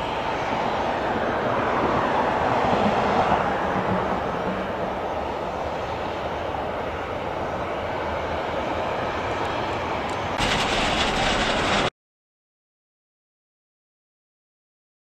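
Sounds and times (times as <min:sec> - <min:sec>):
jet engine rushing: 0:10.4 - 0:11.9.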